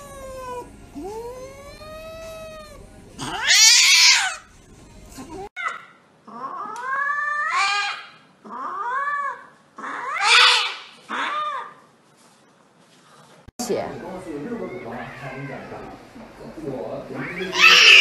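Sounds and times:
cats yowling: 0.0 - 4.5, 5.6 - 11.8, 14.4 - 16.1, 17.1 - 18.0.

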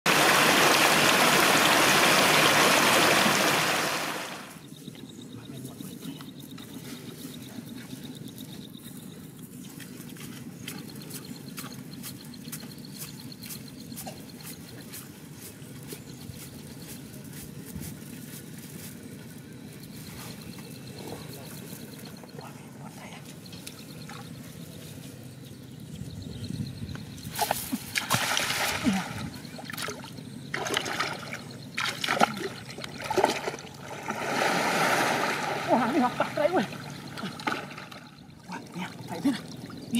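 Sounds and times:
water splashing from wading: 0.1 - 4.5, 27.4 - 39.9
faint pulsing high chirp: 4.5 - 28.0, 28.7 - 33.2, 35.6 - 39.9.

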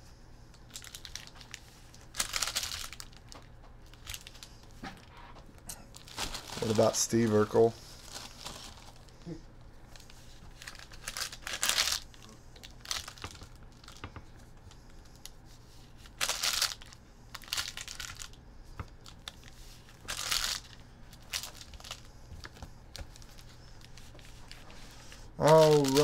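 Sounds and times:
foil wrappers tearing and crinkling: 0.7 - 4.5, 5.9 - 9.1, 9.9 - 14.0, 15.9 - 18.4, 19.0 - 22.1, 23.0 - 26.0.

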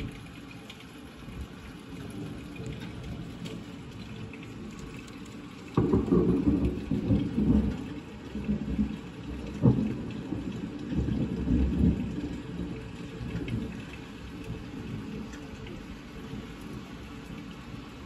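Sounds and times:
steady rain: 0.0 - 18.0
thunder clap and rumble: 1.3 - 18.0.

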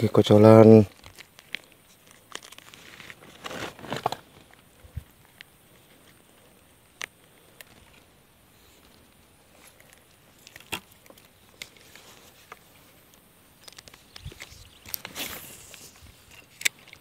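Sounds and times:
low outdoor hiss: 0.0 - 17.0
footsteps in grass: 11.5 - 16.4.

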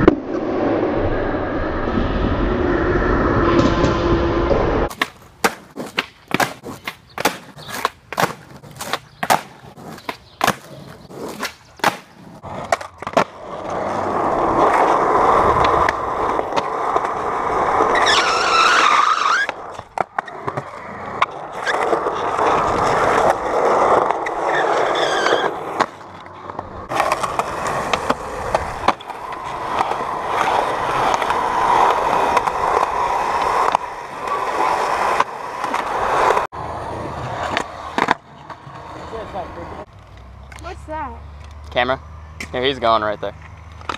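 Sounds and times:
skateboard wheels rolling on concrete: 0.0 - 43.9
skateboard grinding: 3.4 - 40.6
skateboard clacks: 4.9 - 13.5, 19.3 - 36.4.

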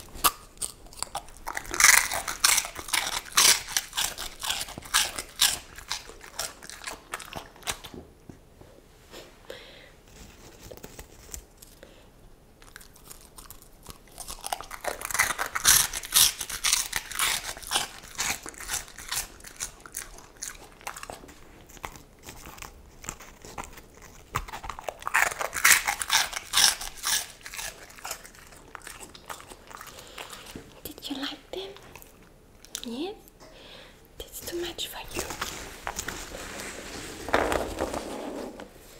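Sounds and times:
dog crunching snacks: 0.0 - 8.0, 12.6 - 33.0, 34.4 - 36.5.

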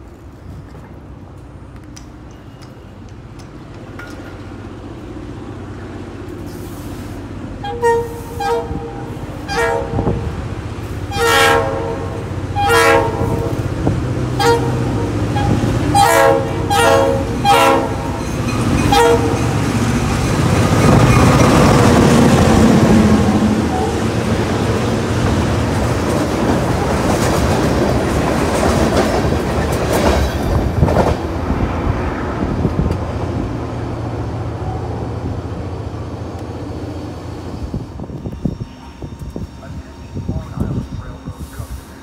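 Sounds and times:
locomotive engine rumble: 0.0 - 42.0
locomotive air horn blasts: 7.6 - 10.3, 11.0 - 13.6, 14.3 - 18.3, 18.9 - 19.5.

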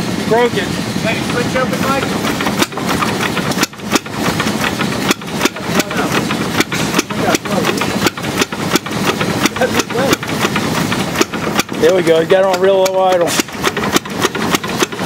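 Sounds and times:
engine idling with uneven chug: 0.0 - 15.0.

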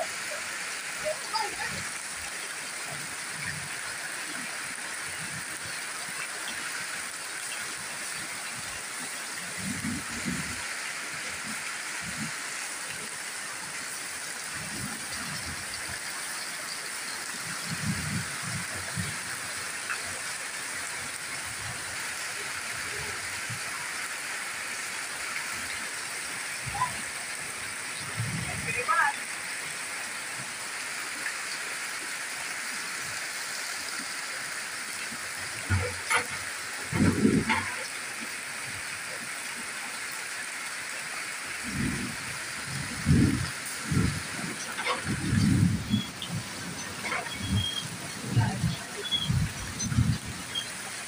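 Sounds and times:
heavy rain pouring off roof: 0.0 - 51.0.

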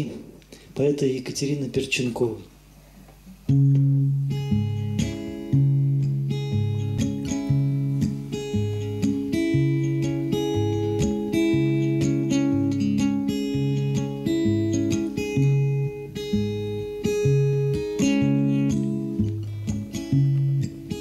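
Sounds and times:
acoustic guitar playing: 2.5 - 21.0.

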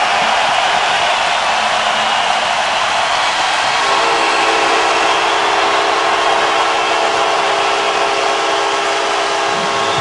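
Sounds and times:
arena crowd cheering: 0.0 - 10.0
horn sounding held chord: 3.7 - 10.0.

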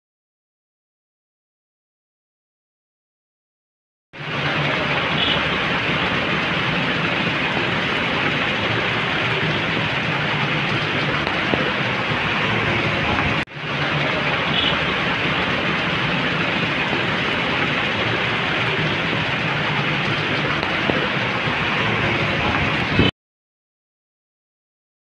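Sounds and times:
heavy rain: 4.2 - 23.1
vehicles driving through water: 4.2 - 23.1.

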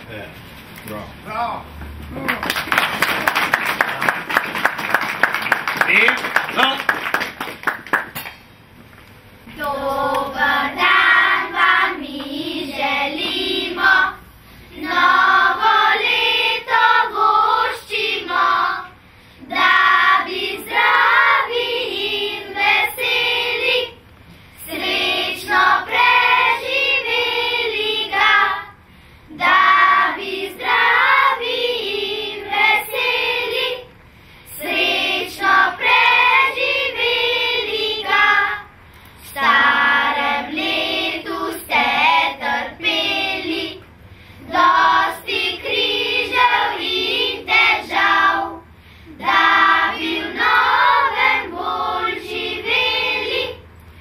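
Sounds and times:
children's choir singing: 9.5 - 14.2, 14.8 - 24.0, 24.6 - 33.9, 34.5 - 53.7.

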